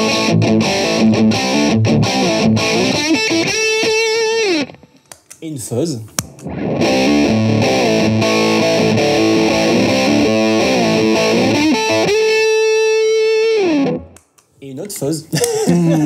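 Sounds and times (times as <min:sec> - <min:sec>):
distorted electric guitar riff: 0:00.0 - 0:05.0, 0:06.3 - 0:14.2.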